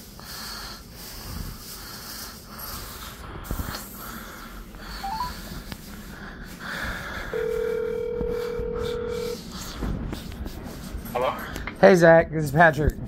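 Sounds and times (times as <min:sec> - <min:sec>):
phone ringback tone: 0:05.0 - 0:05.3, 0:07.4 - 0:09.4
rising three-note beep: 0:05.0 - 0:05.3.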